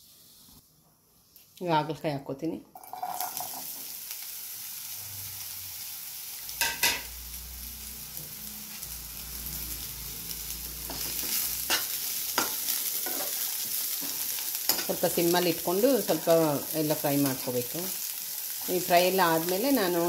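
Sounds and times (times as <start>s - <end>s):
vegetables sizzling in oil: 0.0s - 0.6s, 2.8s - 20.0s
metal spoon scraping a pan: 10.8s - 15.0s.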